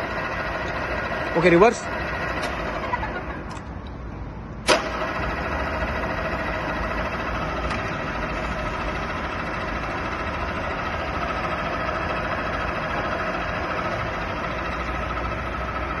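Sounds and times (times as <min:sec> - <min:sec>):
drilling machine spindle hum: 0:04.7 - 0:16.0.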